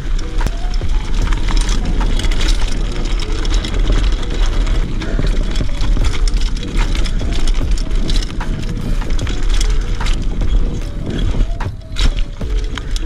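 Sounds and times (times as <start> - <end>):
bike rattling: 0.0 - 13.0
bike tyres rumbling over stones: 0.0 - 13.0.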